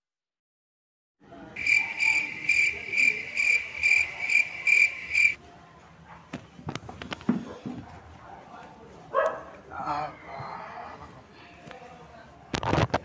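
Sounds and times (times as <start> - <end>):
cricket chirping: 1.6 - 5.4.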